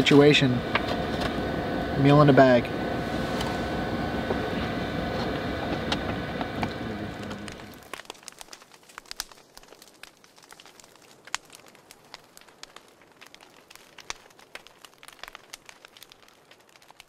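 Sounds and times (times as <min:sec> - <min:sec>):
faint hiss: 0:00.0 - 0:07.9
campfire crackling: 0:00.0 - 0:17.0.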